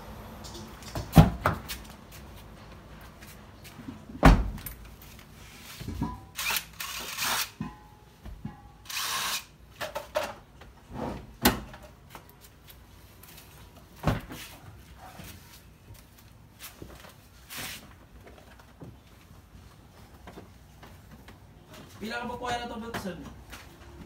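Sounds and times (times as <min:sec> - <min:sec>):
rustling scraping noise: 0:05.0 - 0:06.0, 0:14.3 - 0:18.1.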